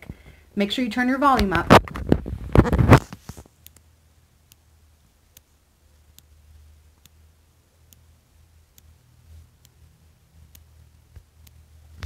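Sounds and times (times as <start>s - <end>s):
phone rubbing on fabric: 2.6s - 3.4s.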